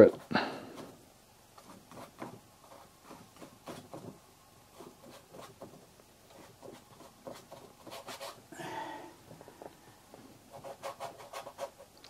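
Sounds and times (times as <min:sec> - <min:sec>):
brush tapping and scraping board: 0:00.0 - 0:08.4, 0:09.3 - 0:11.9.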